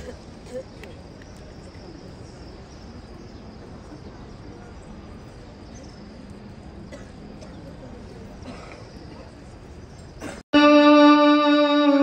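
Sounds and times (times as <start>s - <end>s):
faint scattered voices: 0.0s - 10.4s
crowd hum: 10.2s - 12.0s.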